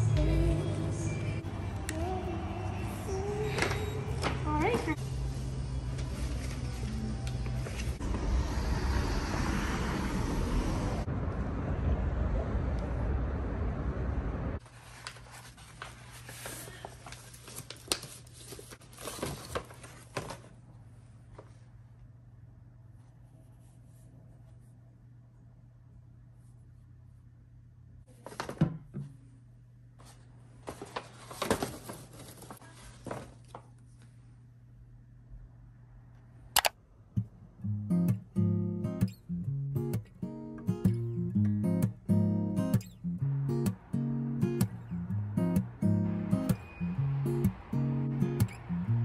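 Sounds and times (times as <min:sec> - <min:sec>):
paper bag rustling: 0:05.8 - 0:08.0, 0:14.6 - 0:20.7, 0:30.0 - 0:33.8.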